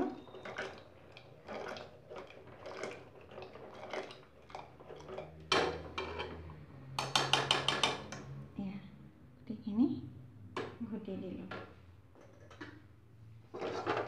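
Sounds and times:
wooden churner swishing and squelching: 0.0s - 5.9s
wood rattling against pot: 13.5s - 14.0s.

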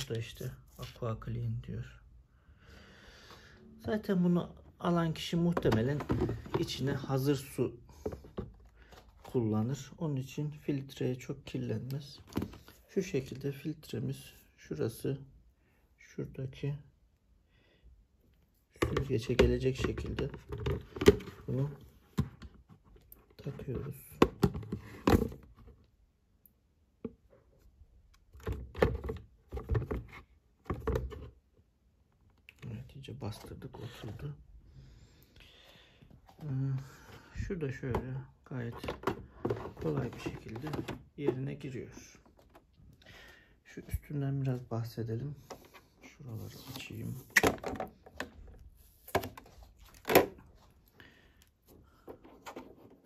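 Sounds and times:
hard plastic knocking and scraping: 5.1s - 7.2s, 7.9s - 9.4s, 12.2s - 12.8s, 18.8s - 25.9s, 27.0s - 31.4s, 36.2s - 43.0s, 46.6s - 50.7s, 51.7s - 53.0s.

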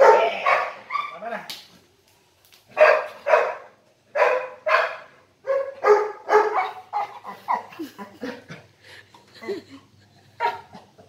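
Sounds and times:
dog barking whinily: 0.0s - 1.2s, 2.8s - 7.8s, 10.4s - 11.0s.

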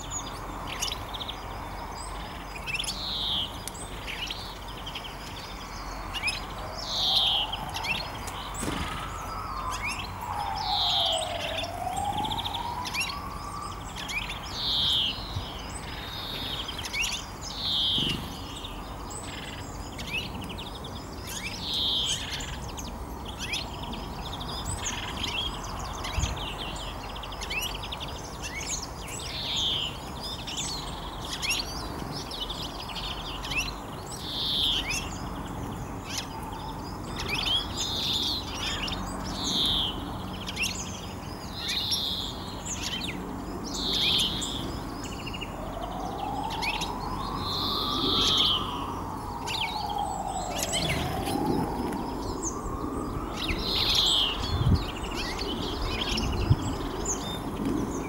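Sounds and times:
songbird descending call: 5.6s - 20.4s, 36.0s - 57.4s.

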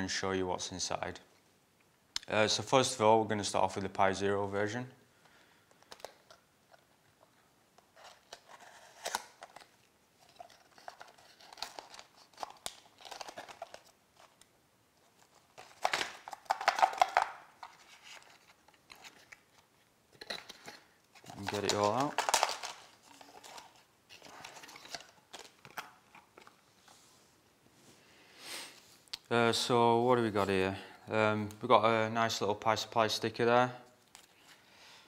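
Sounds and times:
foil bag crinkling: 8.1s - 14.4s, 15.3s - 19.2s, 20.4s - 26.4s.

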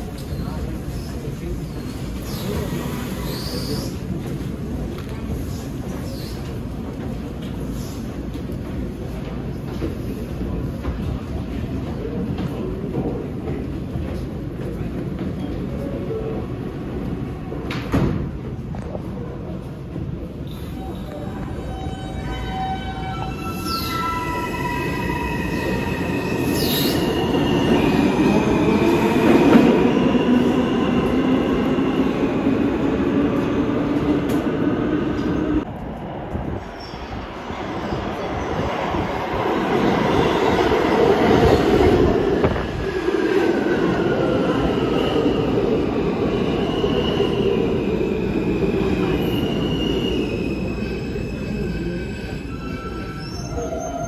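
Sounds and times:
train wheels squealing: 1.7s - 4.0s, 20.4s - 28.2s, 46.6s - 54.0s.

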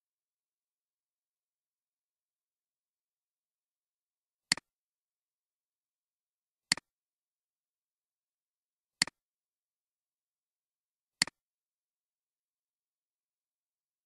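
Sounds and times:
computer mouse clicks: 4.5s - 4.7s, 6.7s - 6.9s.

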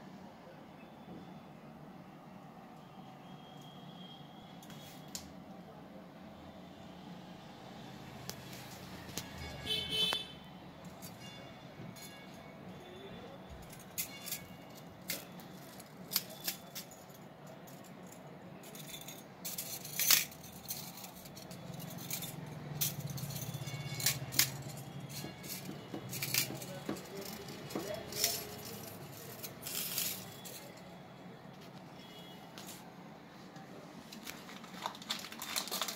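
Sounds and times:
metal bracelets clinking: 13.5s - 30.9s.

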